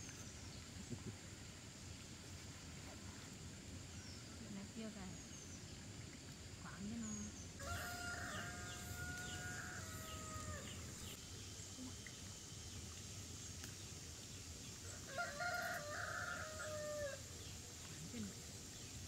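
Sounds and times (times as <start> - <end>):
rooster crowing: 7.6 - 11.2, 15.0 - 17.2.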